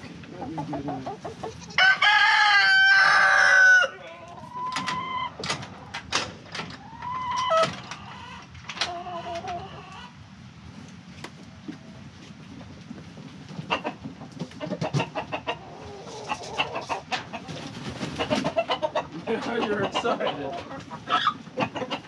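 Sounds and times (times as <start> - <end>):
chickens clucking: 0.0 - 22.0
rooster crowing: 1.7 - 4.0.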